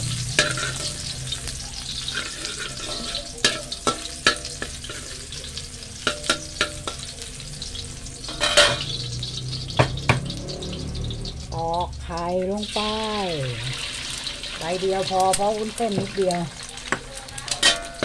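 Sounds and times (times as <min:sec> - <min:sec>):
garlic sizzling in oil: 0:00.0 - 0:18.0
metal spatula scraping and tapping pan: 0:00.1 - 0:11.4, 0:16.8 - 0:18.0.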